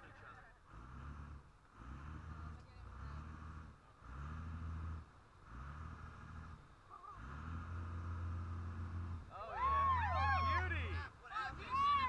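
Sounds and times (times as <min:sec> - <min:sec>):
boat engine droning: 0:00.0 - 0:12.0
wind: 0:00.0 - 0:12.0
excited whoops: 0:09.4 - 0:10.8.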